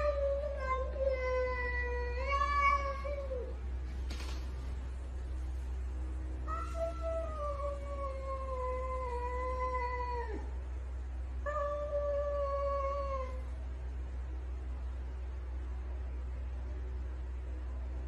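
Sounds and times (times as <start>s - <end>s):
cat yowling: 0.0s - 3.6s
steady low hum: 0.0s - 18.0s.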